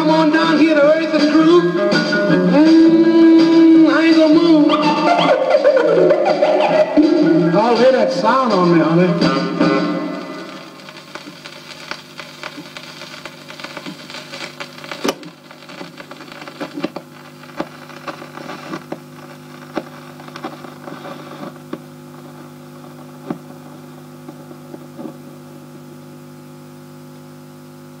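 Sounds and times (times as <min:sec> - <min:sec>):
steady hum and hiss: 0:00.0 - 0:28.0
record surface crackle and clicks: 0:09.8 - 0:25.4.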